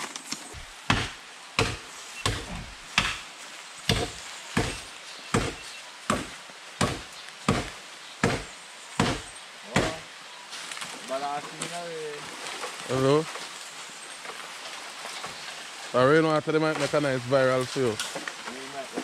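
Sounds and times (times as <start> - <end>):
machete chopping bamboo: 0.8 - 3.3, 3.9 - 10.0.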